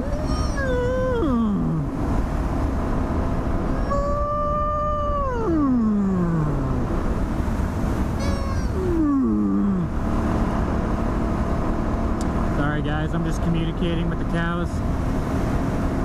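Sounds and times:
steady low rumble: 0.0s - 16.0s
person mooing: 8.2s - 10.0s.

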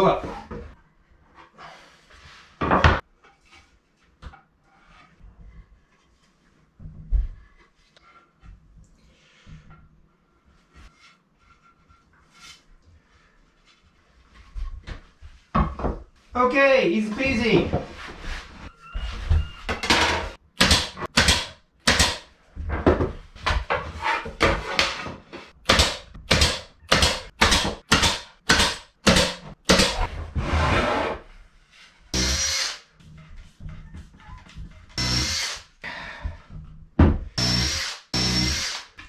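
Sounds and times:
pin nailer firing: 20.6s - 22.2s, 25.7s - 30.0s
cordless drill whining: 37.4s - 38.9s.

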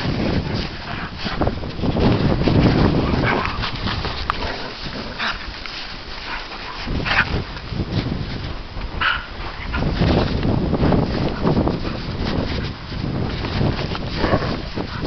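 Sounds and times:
dog barking: 9.0s - 9.3s.

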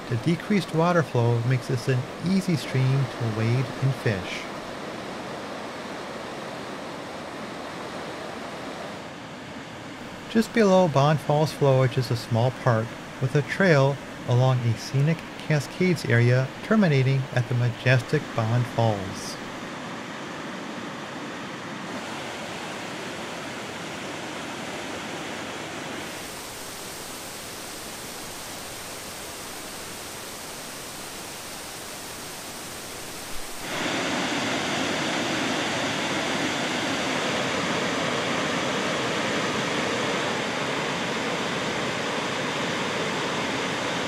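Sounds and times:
water rushing over waterfall: 21.9s - 44.0s.

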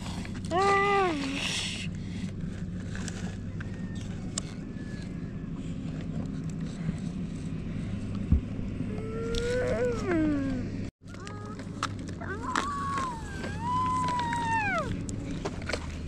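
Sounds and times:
toy excavator scraping gravel: 0.0s - 4.5s
steady low hum: 0.0s - 10.9s.

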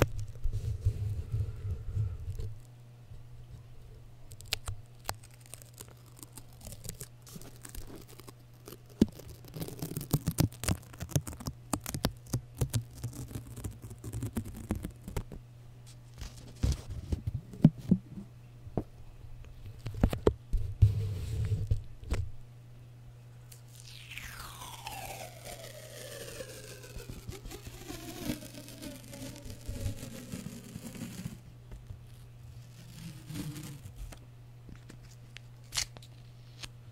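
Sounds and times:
tape crackling on microphone: 23.5s - 32.0s.

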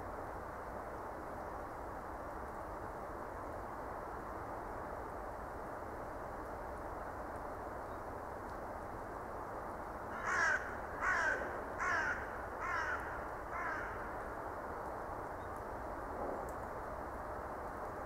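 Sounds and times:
crow cawing: 10.1s - 14.2s.

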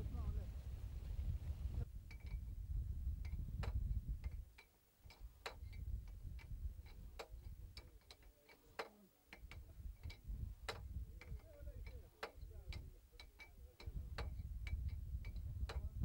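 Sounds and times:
low rumble: 0.0s - 4.2s.

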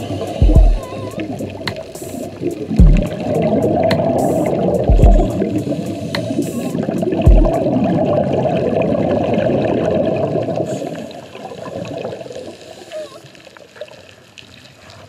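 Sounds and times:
muffled underwater rushing and bubbling: 0.0s - 15.0s.

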